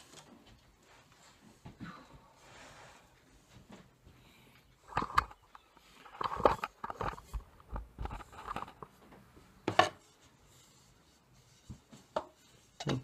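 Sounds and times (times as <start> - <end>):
objects handled on plywood: 0.0 - 2.0, 3.2 - 13.0.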